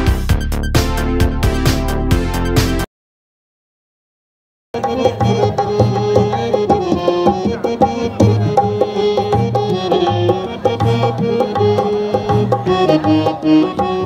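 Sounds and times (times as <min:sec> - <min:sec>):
harmonium chords: 0:04.8 - 0:14.0.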